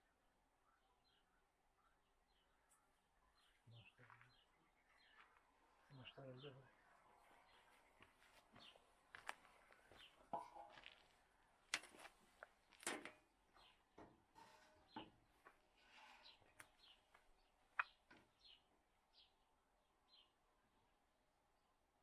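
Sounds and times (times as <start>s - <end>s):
high bird chirps: 17.8s - 18.6s.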